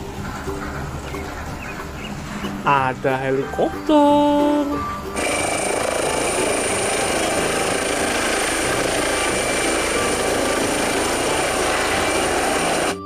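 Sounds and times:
helicopter rotor and turbine: 5.2s - 13.0s.

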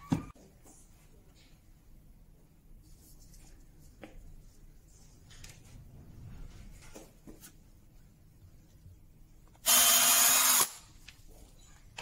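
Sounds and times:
cordless drill boring into wood: 9.7s - 10.8s.

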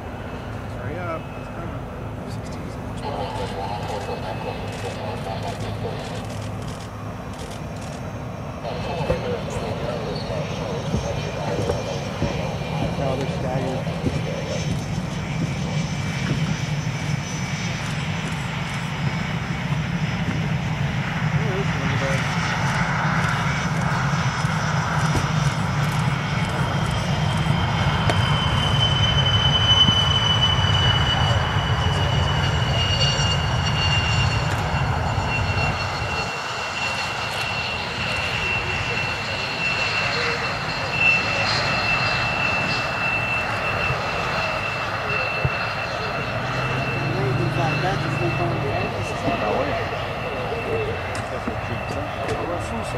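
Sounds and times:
jet engines rumbling: 0.0s - 52.9s.

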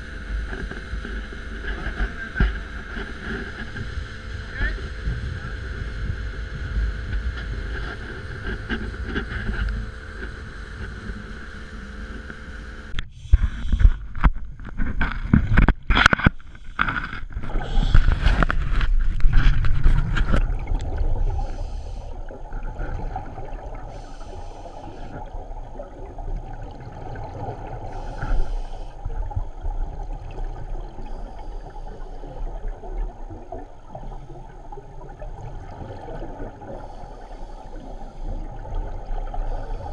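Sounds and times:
motorboat engine running: 0.0s - 39.9s
muffled underwater rumble: 0.0s - 39.9s
diver exhaust bubbles hissing: 16.4s - 19.3s, 20.0s - 39.9s.

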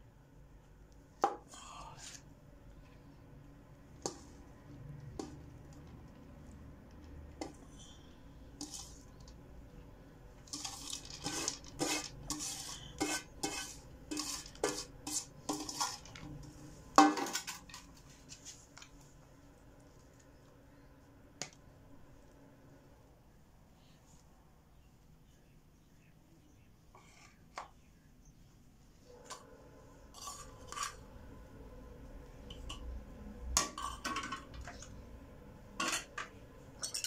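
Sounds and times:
metal pans scraping and tapping: 4.0s - 4.4s, 7.3s - 9.4s, 10.4s - 18.5s, 30.1s - 31.0s, 33.6s - 34.9s, 35.8s - 37.0s.

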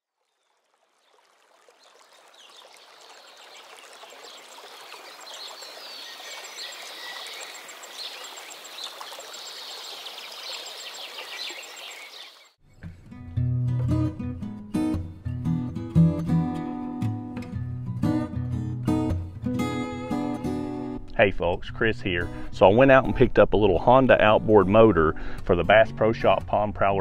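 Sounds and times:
small waterfall running: 0.4s - 12.5s
birds chirping: 1.8s - 12.6s
strummed acoustic guitar music: 12.6s - 27.0s.

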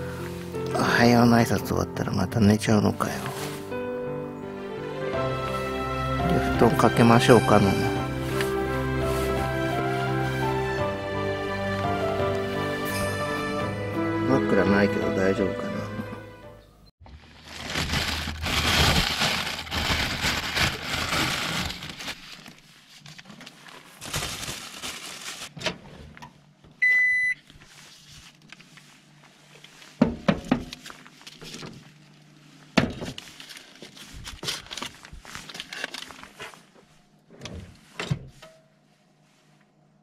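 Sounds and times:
plastic bag rustling: 3.0s - 3.8s, 6.3s - 10.8s, 17.0s - 25.6s, 30.7s - 36.8s
microwave beep: 26.8s - 27.4s.

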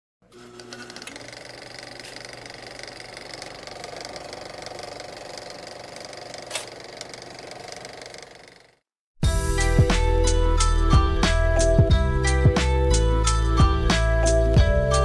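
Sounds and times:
film projector clatter: 0.3s - 8.8s.

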